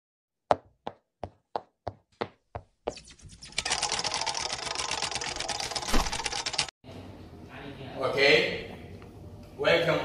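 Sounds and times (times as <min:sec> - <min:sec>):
fast dense rattling clatter: 0:03.6 - 0:06.7.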